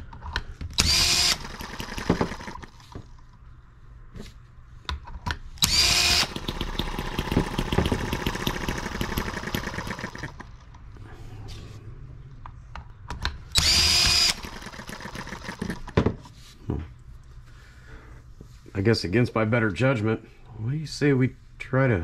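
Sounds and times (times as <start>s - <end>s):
small model engine running: 0.8s - 2.7s, 5.6s - 10.5s, 13.6s - 15.9s
cordless drill whining: 0.8s - 2.8s, 5.6s - 10.5s, 13.6s - 16.0s.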